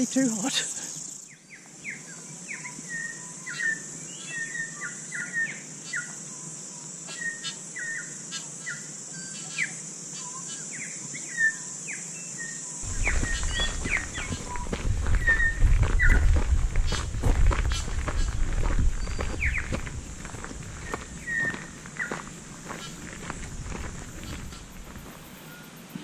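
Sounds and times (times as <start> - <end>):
high insect buzz: 0.0 - 26.0
small birds chirping: 0.0 - 26.0
low rumble: 12.8 - 21.2
footsteps: 12.8 - 26.0.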